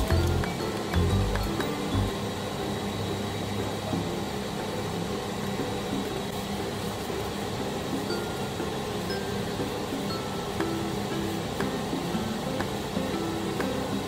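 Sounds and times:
soft background music: 0:00.0 - 0:14.0
steady noisy hum: 0:00.0 - 0:14.0.

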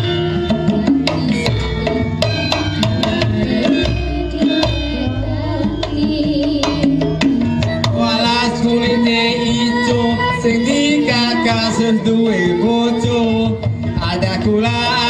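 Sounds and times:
bronze gongs and metallophones: 0:00.0 - 0:15.0
gamelan ensemble playing: 0:00.0 - 0:15.0
hand drum strokes: 0:00.0 - 0:15.0.

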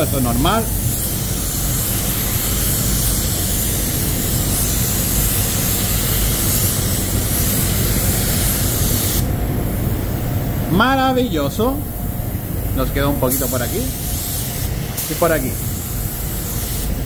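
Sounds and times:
paint spray gun hissing: 0:00.0 - 0:09.3, 0:12.7 - 0:17.0.

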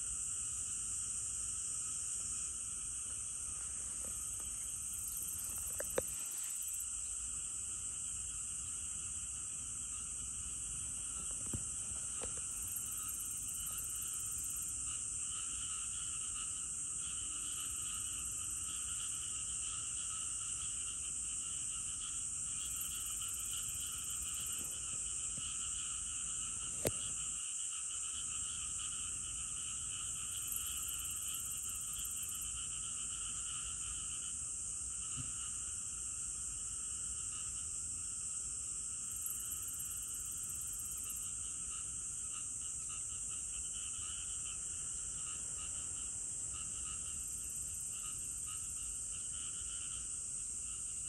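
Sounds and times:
insects buzzing: 0:00.0 - 0:51.0
higher insect buzz: 0:02.2 - 0:07.2.

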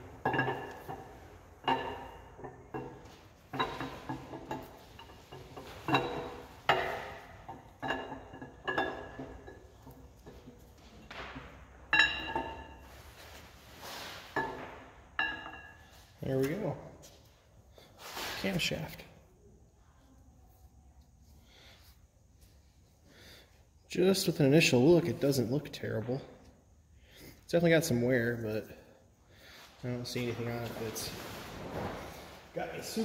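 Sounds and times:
metallic clinks and knocks: 0:00.0 - 0:13.0.

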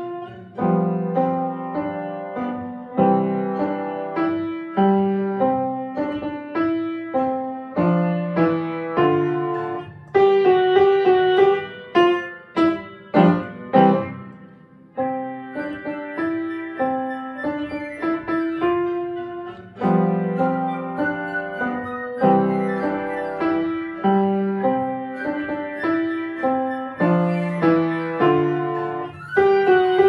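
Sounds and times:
piano playing: 0:00.0 - 0:30.0.

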